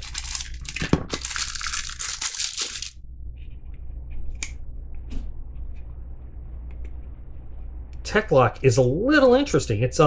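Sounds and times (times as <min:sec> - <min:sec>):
crinkling and rustling: 0:00.0 - 0:04.4.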